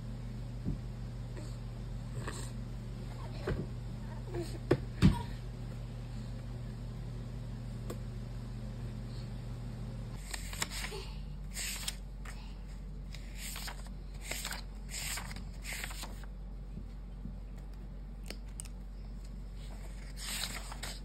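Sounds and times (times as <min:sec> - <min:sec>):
low steady hum: 0:00.0 - 0:21.0
book pages flipping: 0:10.2 - 0:12.4, 0:13.1 - 0:16.3, 0:17.6 - 0:21.0
paper rustling: 0:10.2 - 0:12.5, 0:13.1 - 0:16.3, 0:19.6 - 0:21.0.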